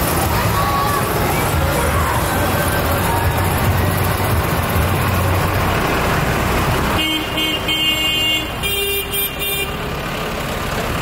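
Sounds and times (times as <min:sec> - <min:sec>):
tractor diesel engines running: 0:00.0 - 0:11.0
horn tooting: 0:06.9 - 0:09.8.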